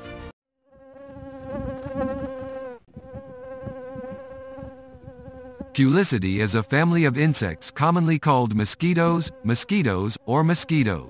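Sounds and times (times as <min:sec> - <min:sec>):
mosquito whining in flight: 0:00.7 - 0:05.7.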